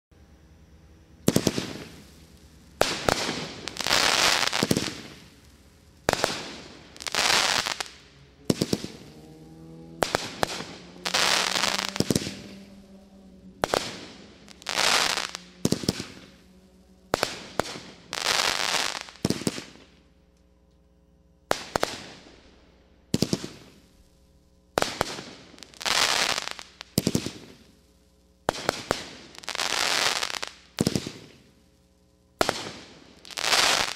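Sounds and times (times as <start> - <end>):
crackling hiss of bursting stars: 0.4 - 20.5, 21.4 - 33.9
firework reports: 1.2 - 20.0, 23.1 - 24.0, 32.4 - 33.9.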